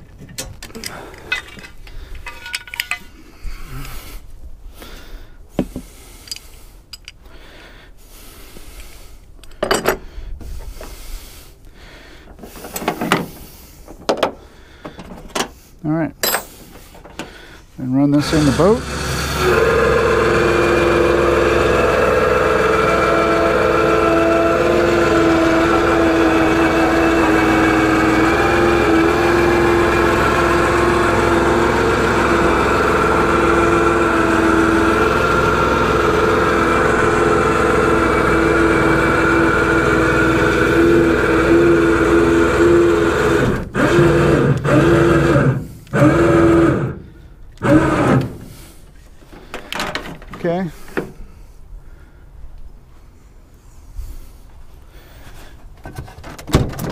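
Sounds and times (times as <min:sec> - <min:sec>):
electric winch motor humming: 0:18.1 - 0:48.8.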